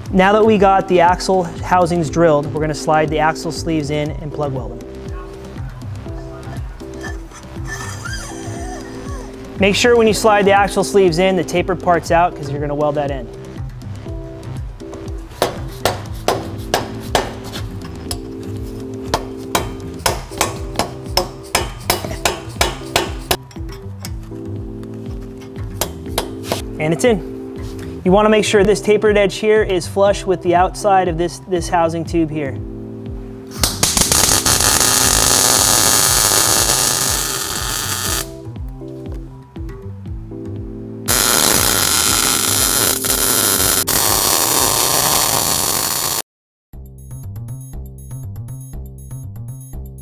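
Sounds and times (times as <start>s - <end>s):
background music with steady beat: 0.0s - 46.2s, 46.8s - 50.0s
mallet knocking on steel: 15.4s - 17.4s
welder crackling and hissing: 33.5s - 38.3s, 41.1s - 46.2s.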